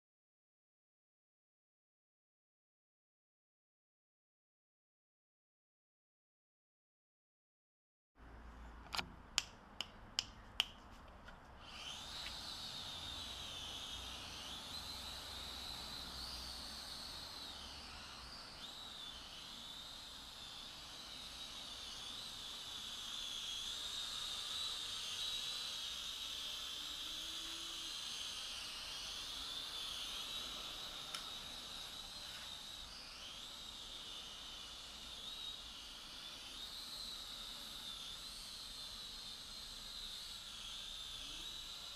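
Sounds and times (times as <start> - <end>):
quadcopter motors whining: 11.3 - 41.9.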